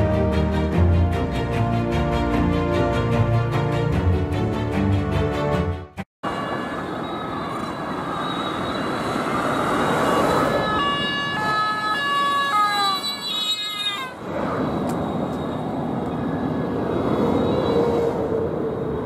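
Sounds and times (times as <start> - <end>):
road noise: 0.0 - 19.0
two-tone sirens: 6.2 - 18.7.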